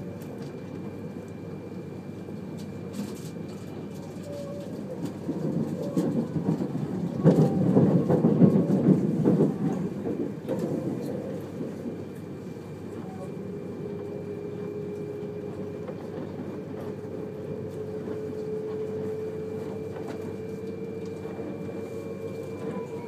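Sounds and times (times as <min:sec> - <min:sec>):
train wheels rumbling on rails: 0:02.2 - 0:23.0
train clattering: 0:04.6 - 0:13.2.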